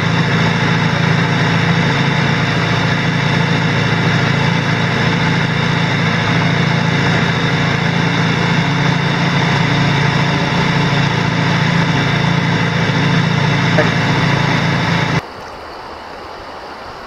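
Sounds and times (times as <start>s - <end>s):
engine humming steadily: 0.0s - 15.3s.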